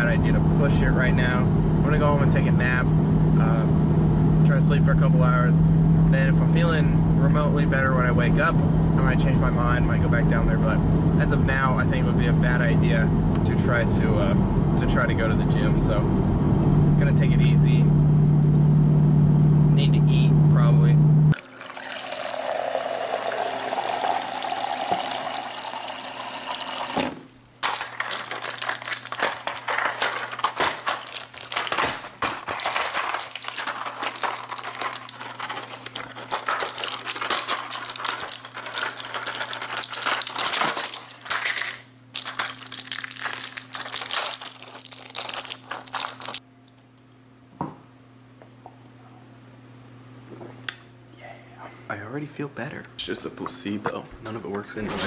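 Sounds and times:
low steady hum: 0.0s - 55.0s
water running into paper cup: 21.4s - 27.2s
close crackling and crinkling: 27.6s - 46.4s.

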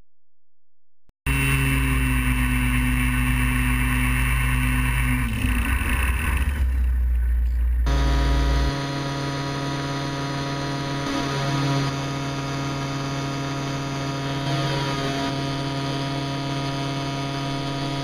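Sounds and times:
small aircraft engine running: 1.3s - 18.0s
steady hum: 1.3s - 18.0s
deep rumble: 2.3s - 8.8s.

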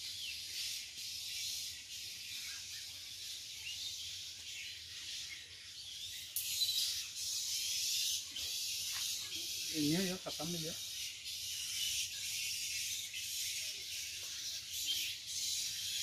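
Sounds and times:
faint bird chirps: 0.0s - 16.0s.

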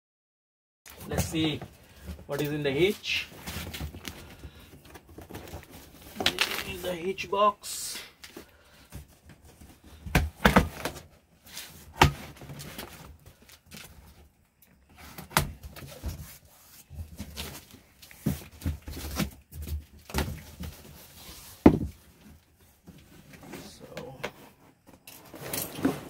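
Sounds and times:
cardboard scraping and rustling: 0.9s - 7.3s, 8.3s - 14.3s, 14.9s - 26.0s
cardboard flaps knocking: 21.6s - 22.0s.

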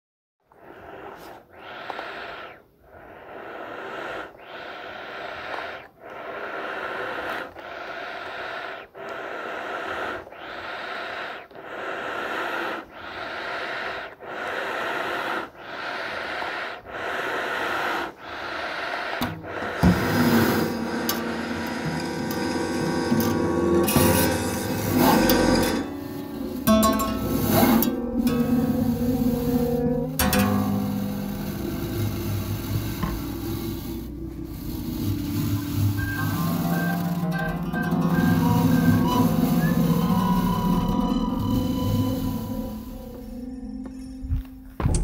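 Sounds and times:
rhythmic breath-like hiss: 0.4s - 45.0s
music with strong low tones: 19.9s - 45.0s.

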